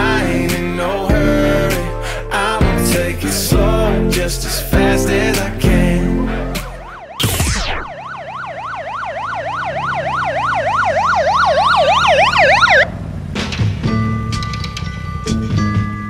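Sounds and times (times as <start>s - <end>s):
music: 0.0s - 6.9s, 13.4s - 16.0s
police siren yelping: 4.5s - 13.2s
quick falling sweep: 6.6s - 8.0s.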